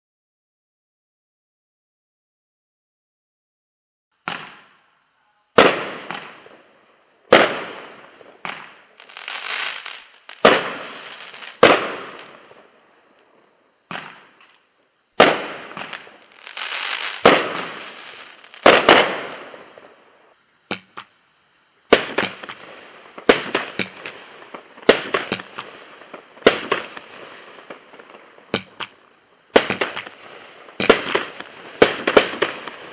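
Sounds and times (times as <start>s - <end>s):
firework launch and burst bangs: 4.2s - 4.8s, 5.6s - 6.7s, 7.3s - 12.7s, 13.9s - 14.5s, 15.2s - 20.0s, 21.9s - 32.9s.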